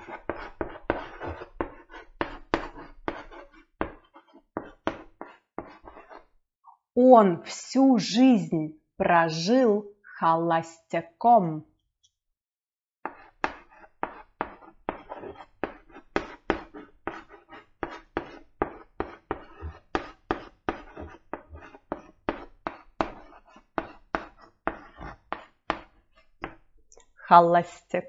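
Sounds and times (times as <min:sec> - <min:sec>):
chalk tapping and scratching: 0:00.0 - 0:06.4, 0:13.0 - 0:26.7.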